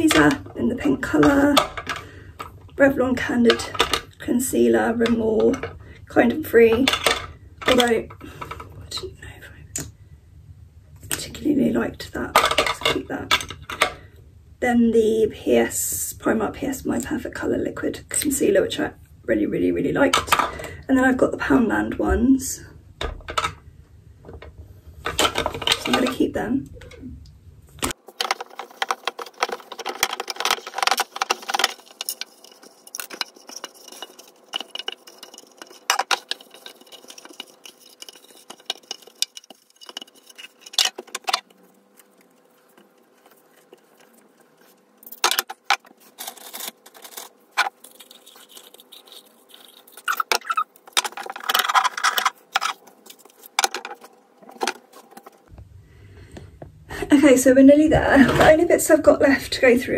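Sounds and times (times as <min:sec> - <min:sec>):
plastic clicking and rattling: 0:27.8 - 0:41.5, 0:49.6 - 0:55.3.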